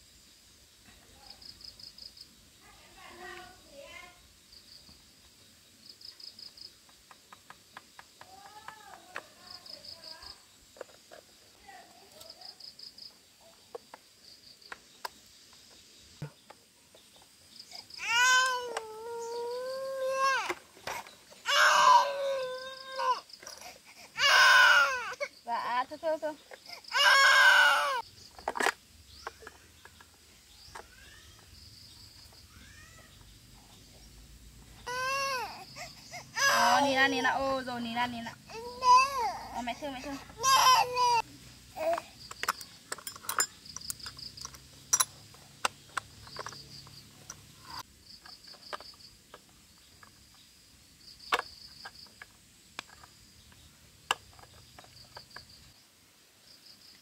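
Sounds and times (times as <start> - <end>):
crickets chirping: 0.0 - 57.0
high insect hum: 0.0 - 57.0
child wailing: 18.0 - 20.6, 21.4 - 23.2, 24.2 - 25.3, 26.9 - 28.0, 34.9 - 37.1, 38.5 - 41.2.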